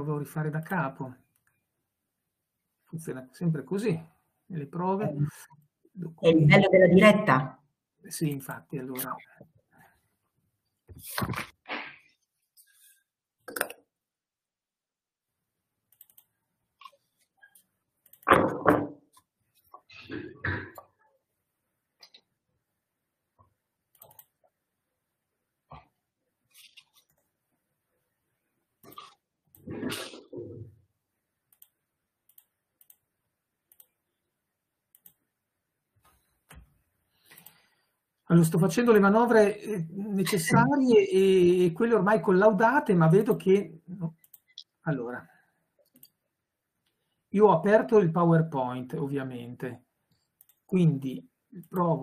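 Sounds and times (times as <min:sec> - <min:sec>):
computer mouse clicks: 0:15.9 - 0:18.3, 0:23.9 - 0:24.4, 0:31.5 - 0:33.1, 0:33.7 - 0:34.0, 0:34.9 - 0:35.2, 0:37.3 - 0:37.6, 0:44.2 - 0:44.7, 0:45.8 - 0:46.2, 0:50.1 - 0:50.7
faint clicks: 0:31.5 - 0:33.0, 0:33.7 - 0:34.0, 0:34.9 - 0:35.2, 0:50.1 - 0:50.7.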